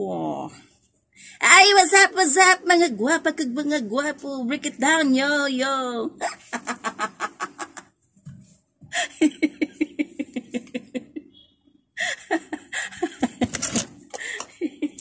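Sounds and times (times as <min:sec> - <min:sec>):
woman laughing hard: 0:06.2 - 0:07.8, 0:08.9 - 0:11.3, 0:12.0 - 0:15.0.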